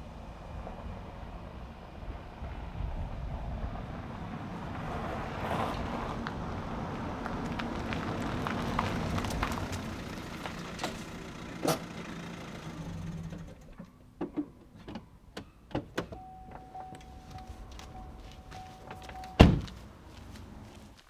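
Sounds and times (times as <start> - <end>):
car engine running: 7.0 - 15.2, 16.4 - 20.9
steady high tone: 16.2 - 19.5
car door slamming: 18.9 - 19.8.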